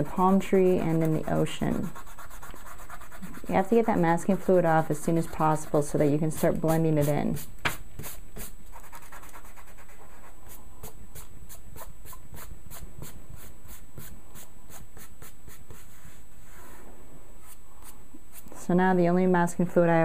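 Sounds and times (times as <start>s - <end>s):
fingers rubbing on paper: 0.0s - 7.2s, 8.0s - 16.7s.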